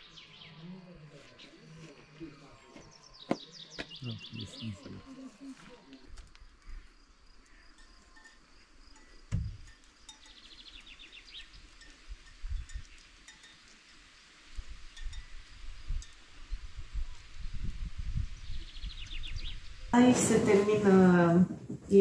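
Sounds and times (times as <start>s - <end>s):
light chime-like clinks: 7.5s - 10.5s, 11.7s - 14.1s, 15.0s - 16.2s.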